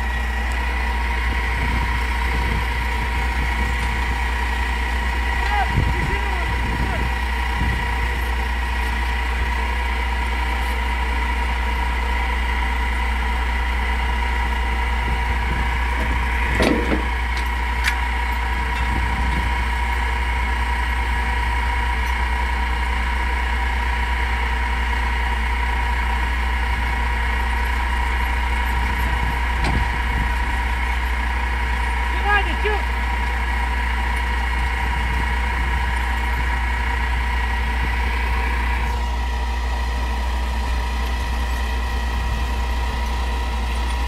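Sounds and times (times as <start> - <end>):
diesel engine idling: 0.0 - 44.0
metal clank: 16.0 - 18.0.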